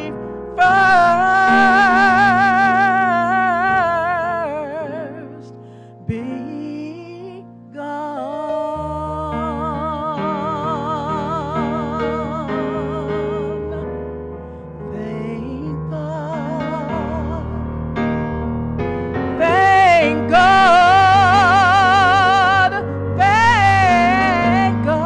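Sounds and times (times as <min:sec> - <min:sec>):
woman singing gospel: 0:00.0 - 0:13.9, 0:19.4 - 0:25.0
keyboard accompaniment: 0:00.0 - 0:25.0.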